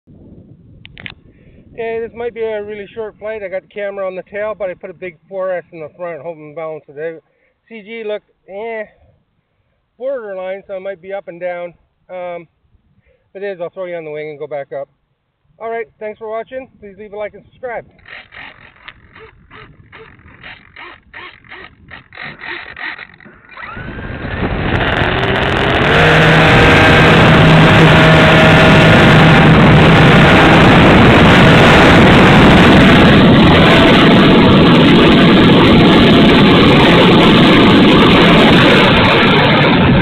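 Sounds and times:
wind rush: 0:00.1 - 0:05.3, 0:16.6 - 0:22.5, 0:23.2 - 0:40.0
electric motors and propellers droning: 0:18.0 - 0:40.0.

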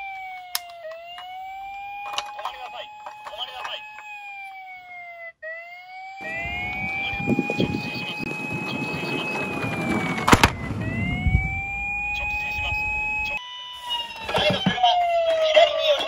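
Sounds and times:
toy siren wailing: 0:00.0 - 0:16.0
wheels rolling on wooden board: 0:06.3 - 0:13.0.

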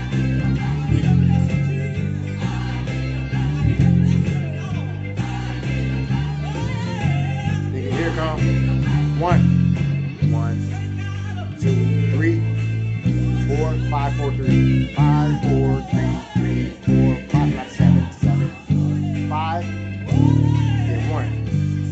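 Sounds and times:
electric bass guitar: 0:00.0 - 0:21.9
person singing: 0:00.0 - 0:21.9.

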